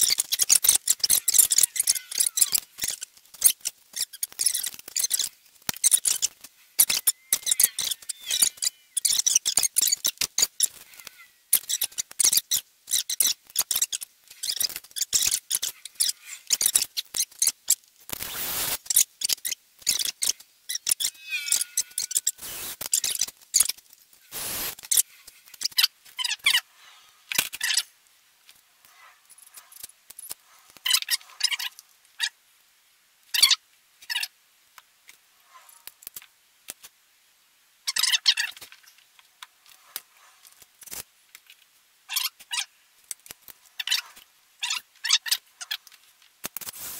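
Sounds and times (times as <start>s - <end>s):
brief squeaks: 20.8s - 23.2s.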